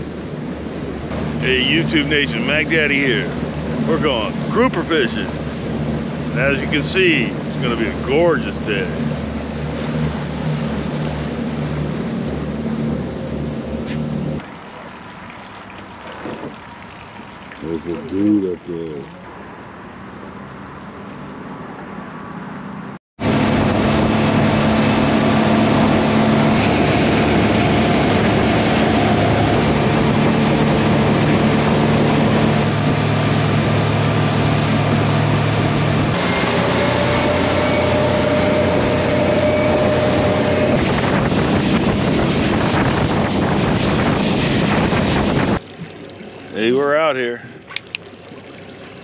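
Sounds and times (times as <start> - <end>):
hull spray rushing: 0.0 - 19.2, 23.2 - 49.0
quiet dockside ambience: 0.0 - 23.0, 45.6 - 49.0
boat engine drone: 0.0 - 49.0
wind buffeting: 23.2 - 47.4.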